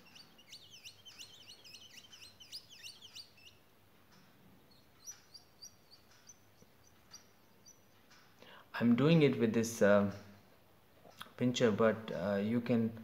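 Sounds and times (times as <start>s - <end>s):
faint bird chirping: 0.0s - 9.3s.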